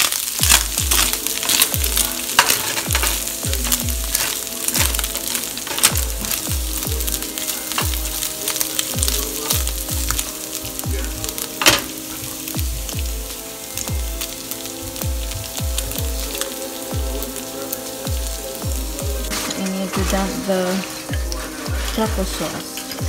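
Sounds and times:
spatula scraping a pan: 0:00.0 - 0:10.6, 0:19.2 - 0:23.0
background music with beat: 0:00.0 - 0:23.0
meat sizzling in a frying pan: 0:00.0 - 0:23.0.

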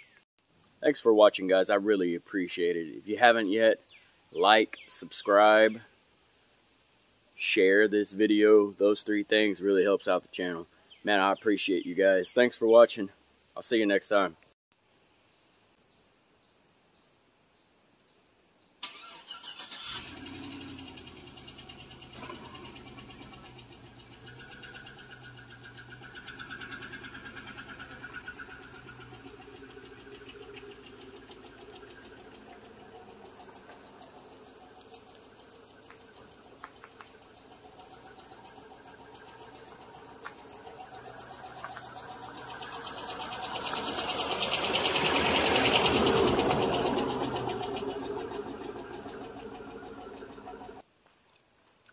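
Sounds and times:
high-pitched insect chorus: 0:00.0 - 0:51.9
car driving past: 0:19.0 - 0:50.8.

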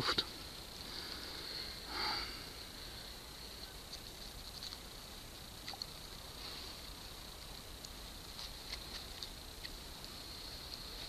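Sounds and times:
faint small clicks: 0:05.6 - 0:06.0, 0:07.8 - 0:10.9.

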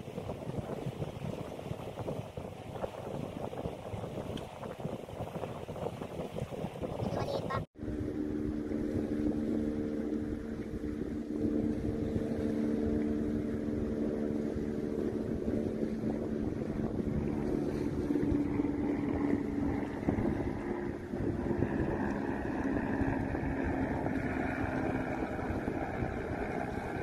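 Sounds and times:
wind buffeting microphone: 0:00.0 - 0:27.0
engine drone: 0:07.7 - 0:27.0.

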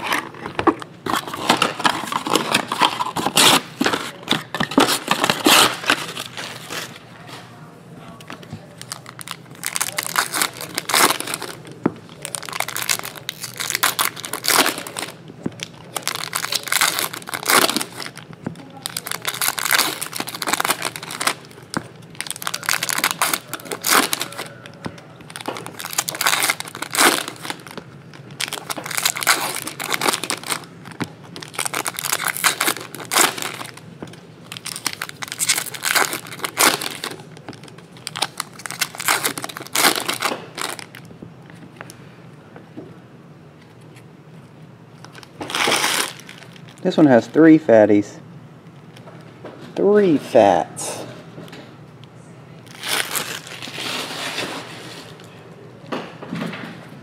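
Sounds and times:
foil wrappers torn and crinkled: 0:00.0 - 0:07.0, 0:08.7 - 0:41.1, 0:45.0 - 0:47.4, 0:52.6 - 0:55.2.

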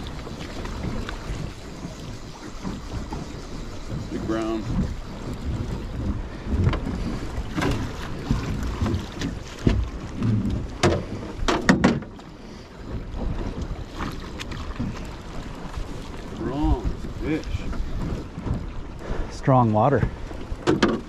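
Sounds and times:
water slapping against hull: 0:00.0 - 0:21.0
wind buffeting microphone: 0:00.0 - 0:21.0
sharp knocks inside boat: 0:03.9 - 0:12.3, 0:20.0 - 0:21.0.

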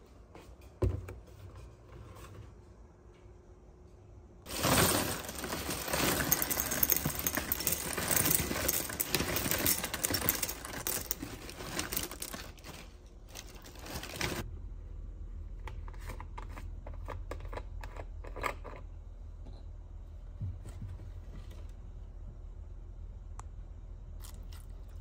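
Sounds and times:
small hard objects clattering: 0:04.5 - 0:14.5.

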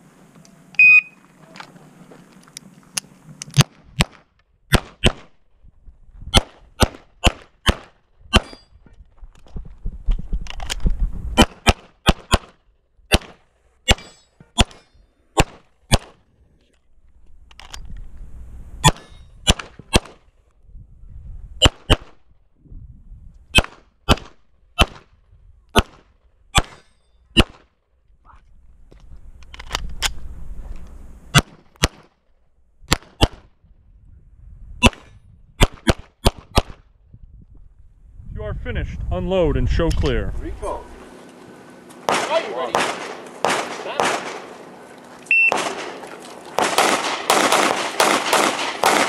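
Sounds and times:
pistol shots: 0:03.6 - 0:05.3, 0:06.4 - 0:08.6, 0:11.4 - 0:14.8, 0:15.4 - 0:16.2, 0:18.8 - 0:20.2, 0:23.6 - 0:25.1, 0:25.7 - 0:26.0, 0:34.8 - 0:36.8, 0:42.0 - 0:44.7, 0:45.3 - 0:49.0.

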